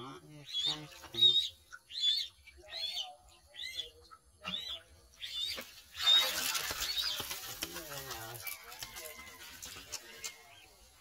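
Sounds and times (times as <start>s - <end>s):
bait peeping: 0.4s - 7.2s
fish splashing at surface: 5.5s - 10.4s.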